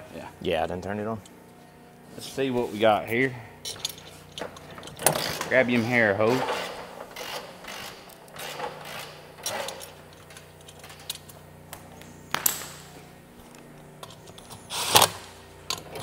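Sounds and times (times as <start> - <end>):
hand tools clicking and knocking: 3.7 - 11.4.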